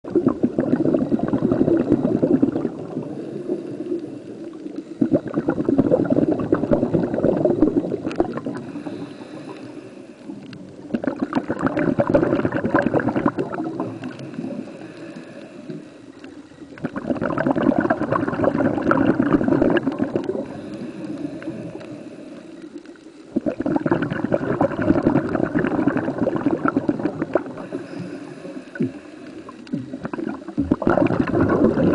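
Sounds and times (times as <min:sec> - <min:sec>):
underwater breathing bubbles: 0:00.0 - 0:31.9.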